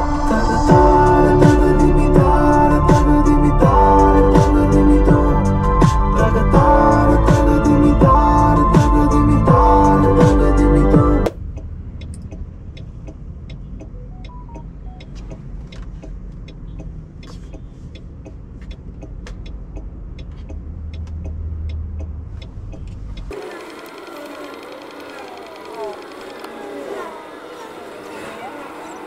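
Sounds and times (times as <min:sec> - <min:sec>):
light clicks and ticks: 0:11.5 - 0:26.8
tyre and road rumble: 0:15.1 - 0:29.0.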